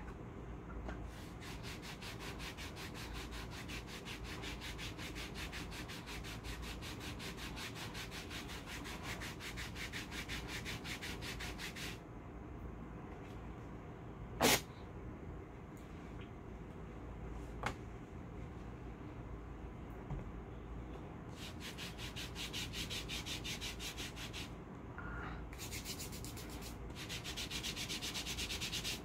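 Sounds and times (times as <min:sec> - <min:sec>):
hand rubbing wax strip on skin: 0:25.6 - 0:29.0.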